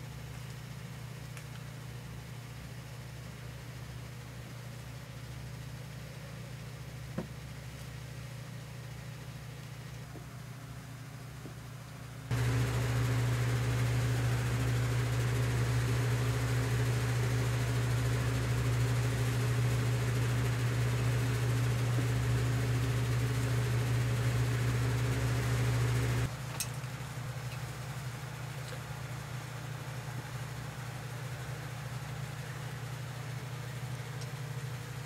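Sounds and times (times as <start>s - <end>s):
electric motor humming: 12.3s - 26.3s.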